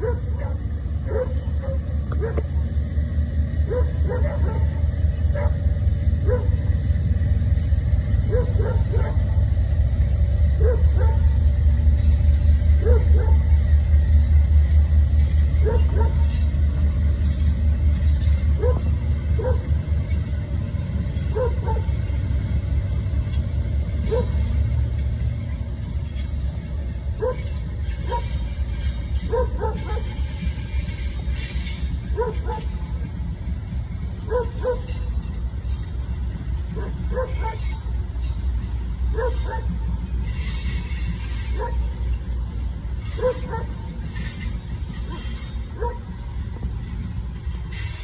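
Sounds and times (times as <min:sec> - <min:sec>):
dog barking and yipping: 0:00.0 - 0:02.4, 0:03.7 - 0:04.7, 0:08.3 - 0:09.2, 0:12.8 - 0:13.4, 0:18.6 - 0:19.7, 0:21.3 - 0:21.9, 0:24.1 - 0:24.4, 0:27.2 - 0:27.5, 0:29.3 - 0:30.1, 0:32.2 - 0:32.7, 0:34.3 - 0:35.0, 0:36.8 - 0:37.8, 0:39.1 - 0:39.8, 0:41.6 - 0:41.9, 0:43.2 - 0:43.8, 0:45.8 - 0:46.1
diesel locomotives rumbling: 0:00.0 - 0:48.0.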